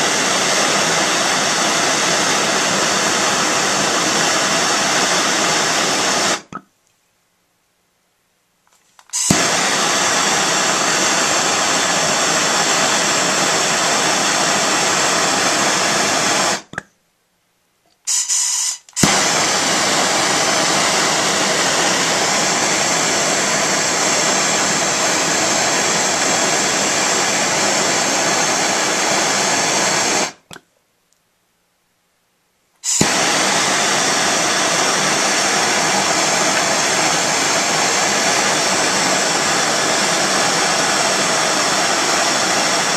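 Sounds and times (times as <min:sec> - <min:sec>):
gas torch flame hissing: 0:00.0 - 0:06.6, 0:09.0 - 0:16.8, 0:18.1 - 0:30.5, 0:32.8 - 0:42.9.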